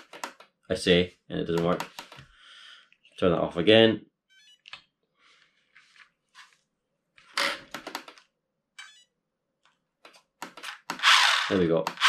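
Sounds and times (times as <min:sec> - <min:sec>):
plastic clicks and clatter: 0:00.0 - 0:00.5, 0:07.7 - 0:08.3, 0:09.6 - 0:11.0.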